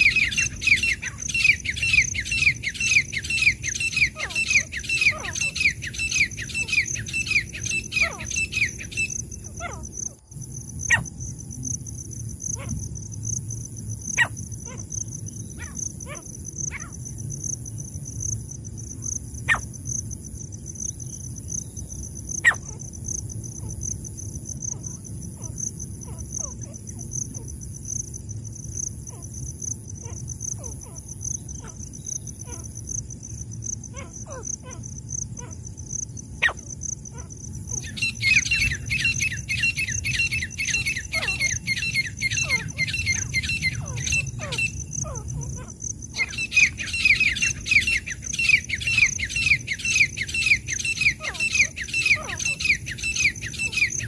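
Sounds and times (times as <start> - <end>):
francolin repeated sharp calls: 0.0 - 9.8, 36.4 - 54.0
shrill insect trill: 0.0 - 54.0.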